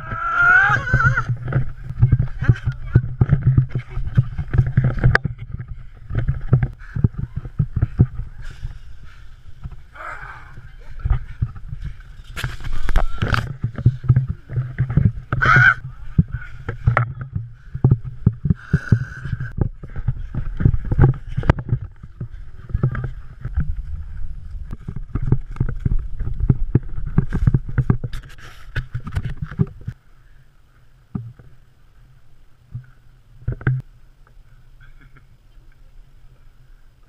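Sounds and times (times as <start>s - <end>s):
wind buffeting camera: 0.0s - 30.0s.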